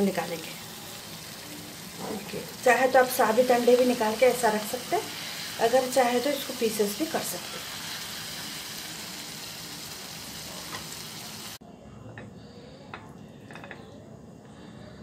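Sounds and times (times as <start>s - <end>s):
curry sizzling in a frying pan: 0.0s - 11.6s.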